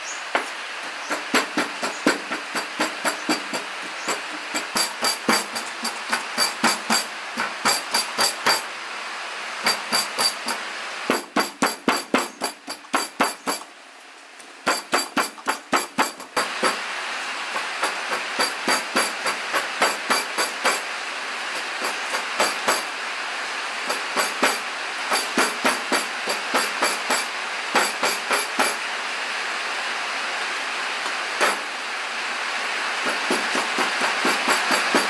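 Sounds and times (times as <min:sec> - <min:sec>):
steady hiss: 0:00.0 - 0:35.0
cleaver chopping meat on wooden board: 0:11.1 - 0:13.6.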